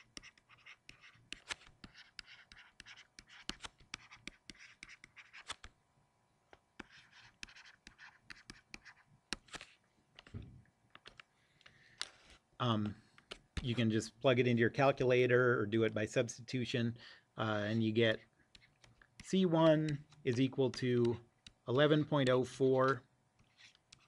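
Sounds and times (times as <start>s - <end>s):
stylus tapping on tablet screen: 6.5s - 11.2s.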